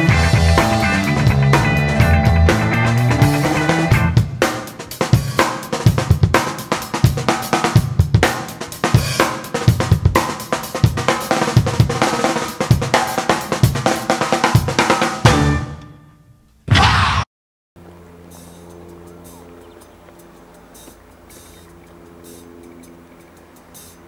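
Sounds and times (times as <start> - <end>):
drum kit theme music: 0.0 - 16.1, 20.3 - 24.0.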